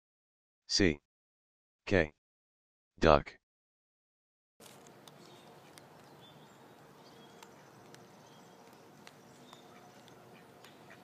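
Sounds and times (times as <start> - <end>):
soft ticks: 7.4 - 10.8.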